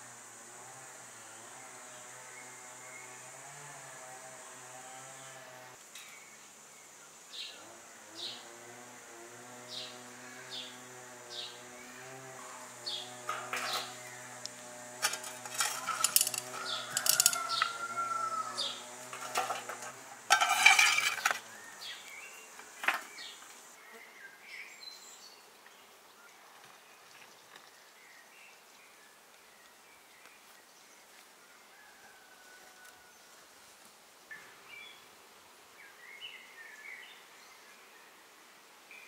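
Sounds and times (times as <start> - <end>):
metal tools scraping and clinking: 13.3 - 14.0, 15.0 - 17.7, 19.0 - 21.4.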